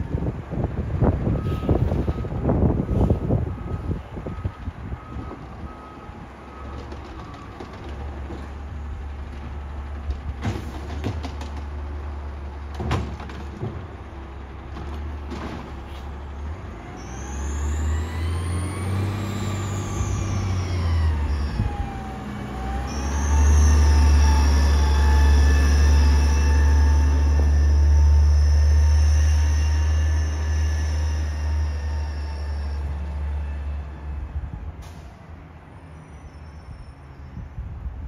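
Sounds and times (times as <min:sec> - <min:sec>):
sharp knocks of cart set down: 0:12.8 - 0:13.8.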